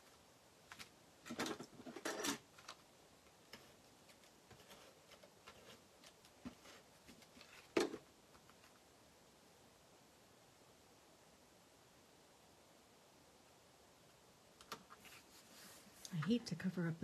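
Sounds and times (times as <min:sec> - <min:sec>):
paper rustling: 0:00.0 - 0:02.9, 0:03.5 - 0:08.8.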